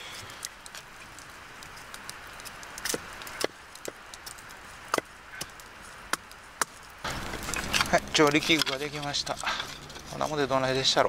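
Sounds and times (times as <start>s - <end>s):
blade chopping wooden sticks: 1.6s - 10.3s.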